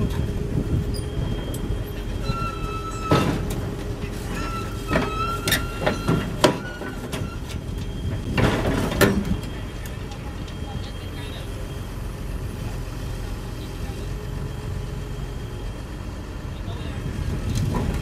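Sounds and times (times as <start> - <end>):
excavator diesel engine rumble: 0.0 - 18.0
high squeal: 0.2 - 3.5, 4.1 - 8.3.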